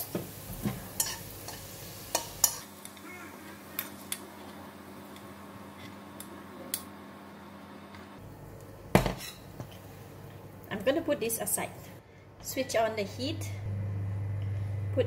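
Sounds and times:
spoon scraping and clinking on wok: 0:01.0 - 0:02.7.

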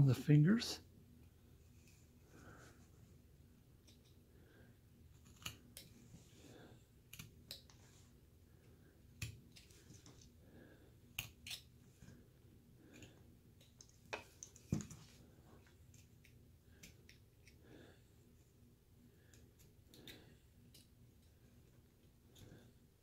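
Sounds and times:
knife clicks carving wood: 0:11.2 - 0:11.7.

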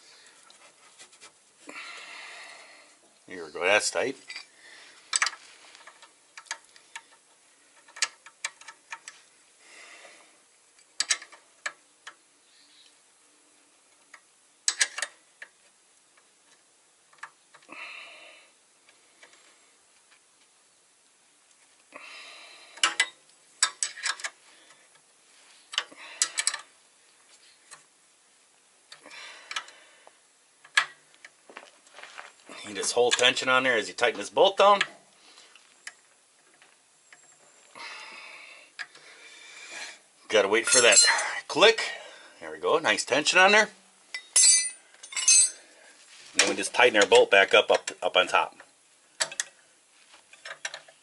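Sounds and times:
wrench clinking against metal: 0:40.6 - 0:41.4, 0:44.1 - 0:45.6.

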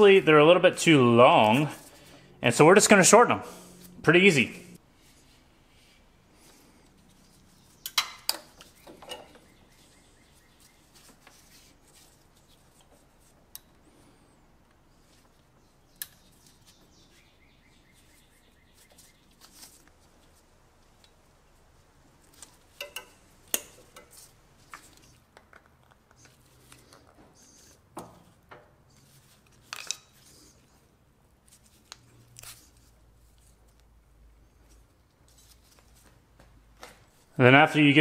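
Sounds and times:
clicks and taps of pliers on metal: 0:22.8 - 0:24.1.

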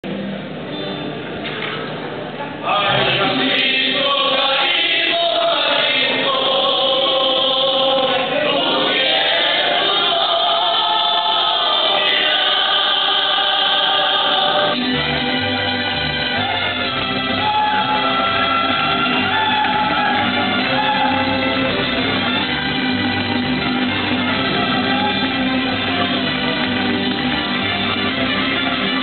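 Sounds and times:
voices singing in harmony: 0:02.6 - 0:14.9, 0:17.4 - 0:21.6
guitars: 0:14.6 - 0:29.0.

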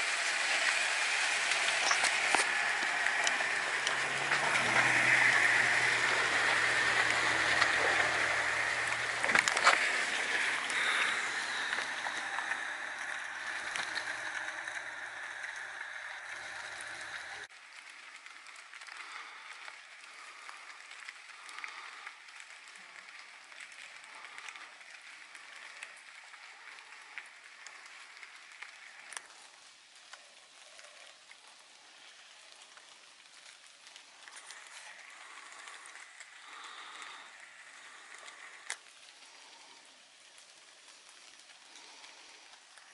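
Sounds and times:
vehicle engine running: 0:00.0 - 0:17.5
rain pattering on leaves: 0:00.0 - 0:42.9
sharp water drips: 0:00.0 - 0:42.9.

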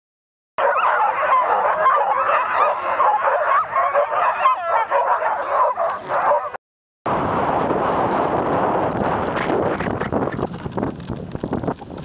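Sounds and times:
sled dogs yelping and howling: 0:00.6 - 0:06.6.

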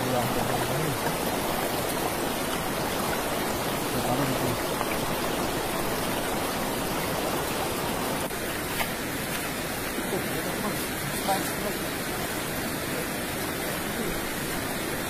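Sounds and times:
river flowing over rocks: 0:00.0 - 0:15.0.

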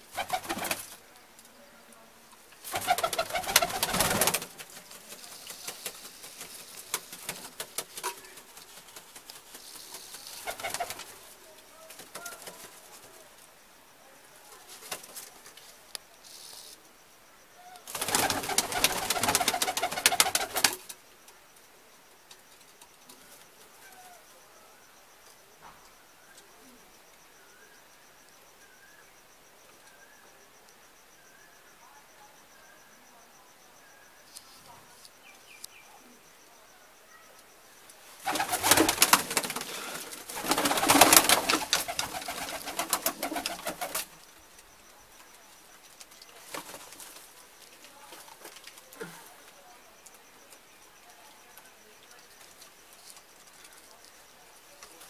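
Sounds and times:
wings flapping: 0:00.0 - 0:01.0, 0:02.6 - 0:13.2, 0:17.8 - 0:21.0, 0:38.2 - 0:44.3, 0:46.4 - 0:47.3
pigeons cooing and shuffling: 0:02.6 - 0:11.2, 0:38.2 - 0:44.2.

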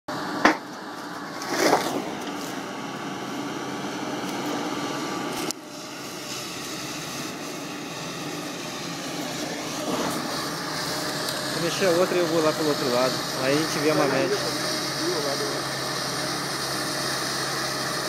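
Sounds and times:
excavator engine and hydraulics hum: 0:00.1 - 0:18.0
brief hydraulic rush: 0:05.3 - 0:18.0.

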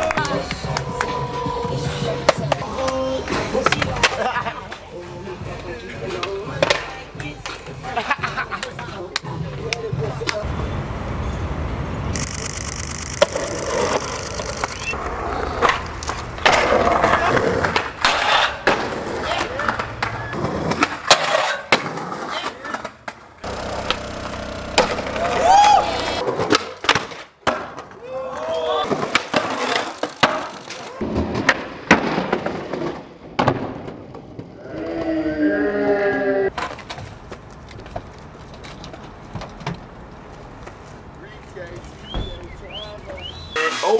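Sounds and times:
skateboard clacking: 0:00.0 - 0:10.4, 0:13.2 - 0:28.0, 0:28.9 - 0:32.8
skateboard wheels rolling: 0:00.0 - 0:10.4, 0:12.4 - 0:35.4, 0:36.4 - 0:43.9
skateboard grinding on rail: 0:13.2 - 0:28.0, 0:28.8 - 0:35.2
person shouting: 0:25.0 - 0:26.2.

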